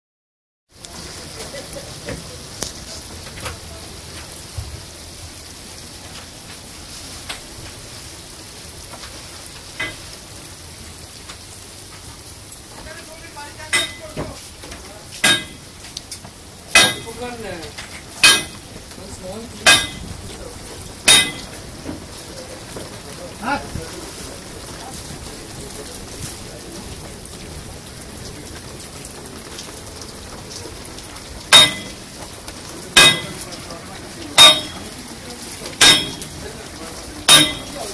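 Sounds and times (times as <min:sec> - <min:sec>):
heavy rain on lake: 0:00.7 - 0:37.9
sharp metallic clank: 0:09.8 - 0:10.0, 0:13.8 - 0:14.2, 0:15.2 - 0:15.7, 0:16.8 - 0:17.2, 0:18.0 - 0:18.6, 0:19.7 - 0:20.1, 0:21.1 - 0:21.6, 0:31.5 - 0:32.0, 0:33.0 - 0:33.4, 0:34.4 - 0:34.9, 0:35.8 - 0:36.4, 0:37.3 - 0:37.9.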